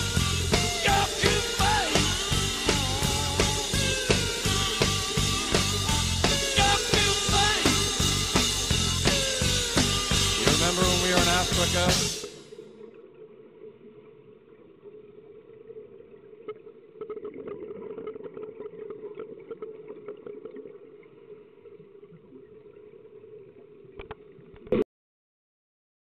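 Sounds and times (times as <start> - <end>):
low underwater hum: 0.0 - 24.8
scuba bubbles crackling: 10.6 - 24.6.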